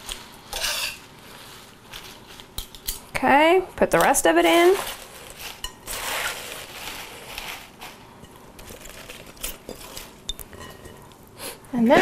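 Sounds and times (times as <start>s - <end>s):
spinach leaves rustling and crinkling: 1.0s - 2.6s, 4.2s - 10.2s.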